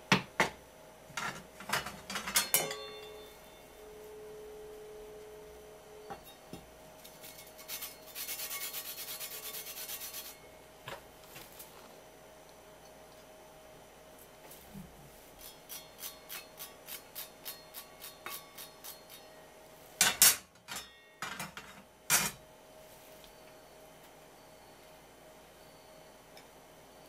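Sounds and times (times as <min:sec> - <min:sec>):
faint ringing tone: 0:02.1 - 0:07.4, 0:09.3 - 0:10.8, 0:22.4 - 0:27.0
rind rasping on metal grater: 0:07.0 - 0:10.4, 0:15.4 - 0:19.3.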